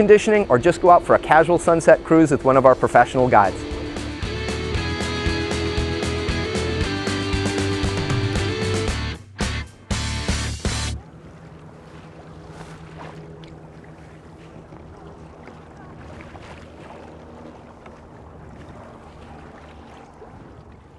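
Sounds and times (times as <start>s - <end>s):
water lapping around kayaks: 0.0s - 8.7s, 10.6s - 20.9s
music: 1.9s - 11.0s
wind on microphone: 14.0s - 20.9s.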